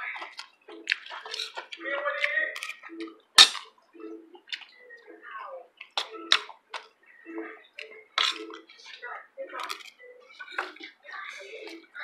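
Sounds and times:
chewing and lip smacking: 0.1s - 5.0s, 5.8s - 7.0s.

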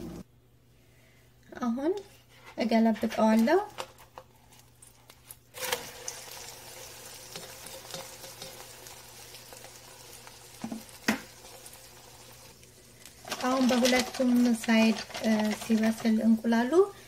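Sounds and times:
egg sizzling in oil: 4.8s - 15.7s.

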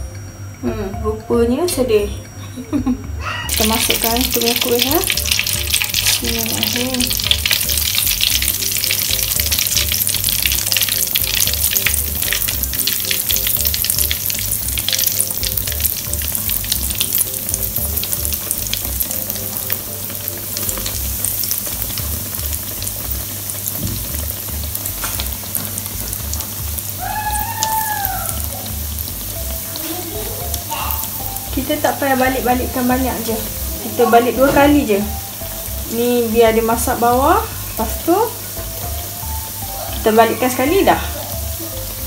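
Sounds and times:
dough frying in oil: 3.5s - 42.0s.

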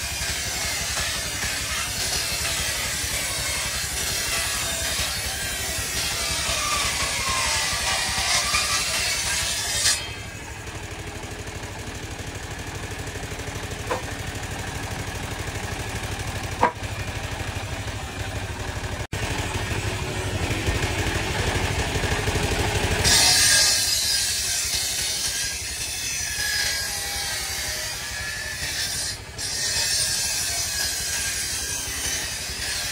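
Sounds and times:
saw blade ripping log: 0.0s - 10.4s, 23.0s - 32.9s
saw drive droning: 0.0s - 32.9s
short knocks: 16.6s - 16.9s.

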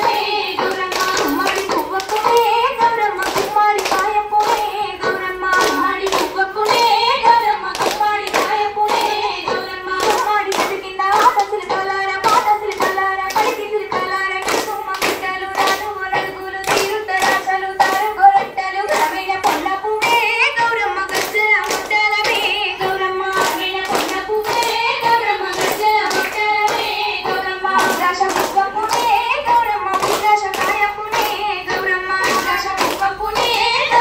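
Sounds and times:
people singing: 0.0s - 34.0s
rhythmic hand clapping: 0.0s - 34.0s.

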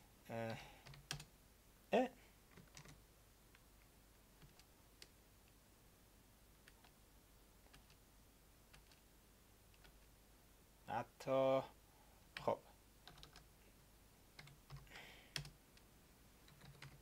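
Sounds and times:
keyboard keystrokes: 2.5s - 3.0s, 16.5s - 17.0s.

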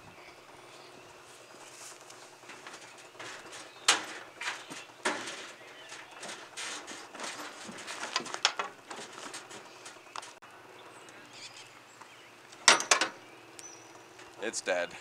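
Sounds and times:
tractor clanking and knocking: 1.9s - 10.4s, 12.6s - 13.2s.

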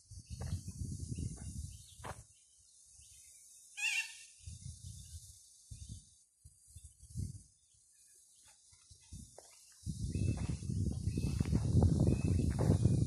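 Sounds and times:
footsteps on dirt: 0.4s - 0.7s, 1.3s - 2.3s, 8.4s - 13.0s
short bird call: 3.8s - 4.3s.

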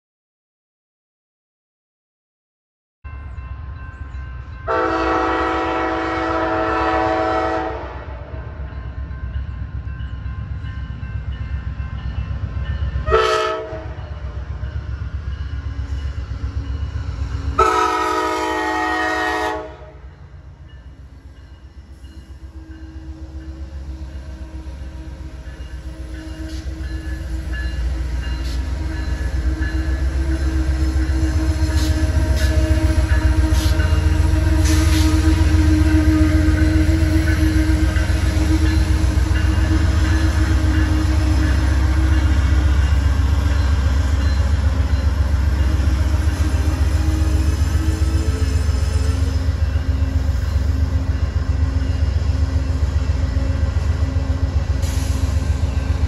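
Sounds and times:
train rumbling: 3.1s - 56.0s
train horn blasts: 4.6s - 8.6s, 13.0s - 14.4s, 17.5s - 20.2s, 28.3s - 43.0s.

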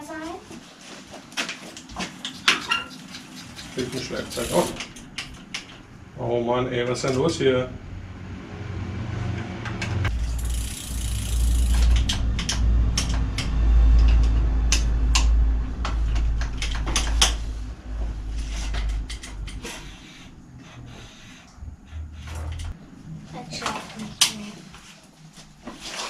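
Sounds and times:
low rumble: 7.6s - 23.2s.

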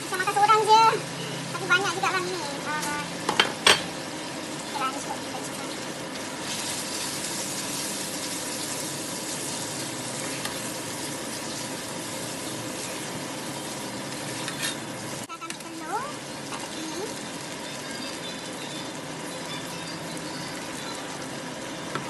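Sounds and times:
food sizzling in a frying pan: 0.0s - 22.0s
spatula stirring: 12.4s - 14.9s.

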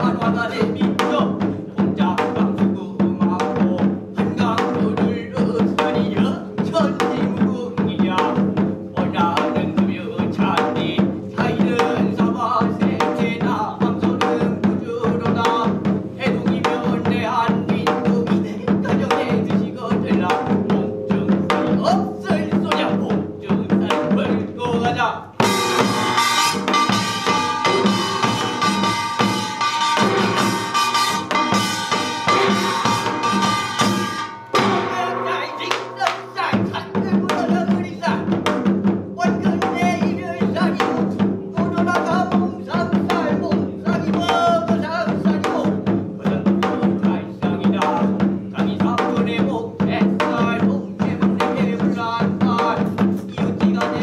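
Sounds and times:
person chanting: 0.0s - 24.9s, 34.6s - 38.3s
hourglass drum beating: 0.0s - 48.5s
barrel drum beating: 0.0s - 54.0s
metal gong strokes: 25.4s - 36.2s.

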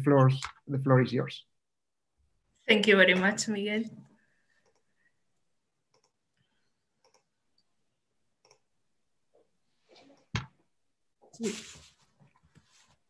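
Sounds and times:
computer mouse clicking: 4.6s - 4.9s, 5.9s - 6.2s, 7.0s - 7.3s, 8.4s - 8.6s
short rustle: 11.4s - 13.0s.

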